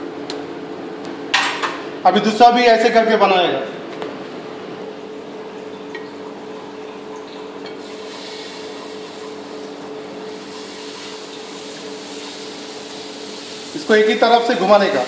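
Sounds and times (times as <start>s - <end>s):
batter hissing on a hot griddle: 7.8s - 15.0s.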